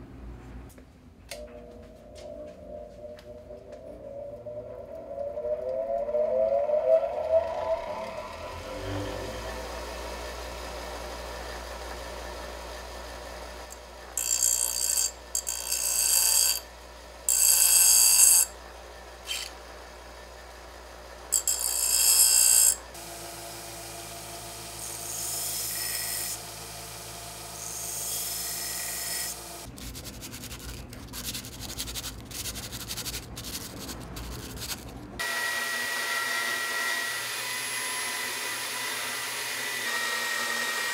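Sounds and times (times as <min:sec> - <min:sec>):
bench grinder running: 0:06.6 - 0:29.7, 0:35.2 - 0:40.9.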